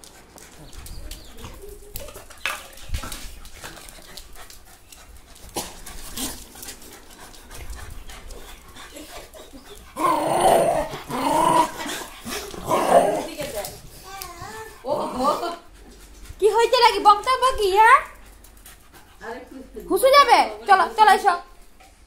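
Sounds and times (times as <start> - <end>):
dog grumbling: 9.9 - 13.5.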